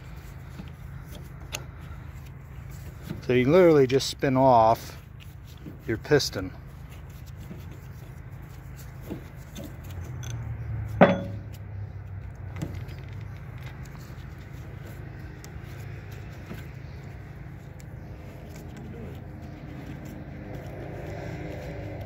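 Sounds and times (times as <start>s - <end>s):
sharp metallic clink: 11.0s - 11.5s.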